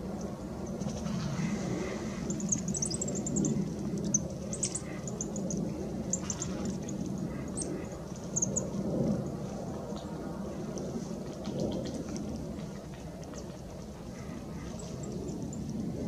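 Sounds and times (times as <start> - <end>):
small birds chirping: 1.8 - 8.7.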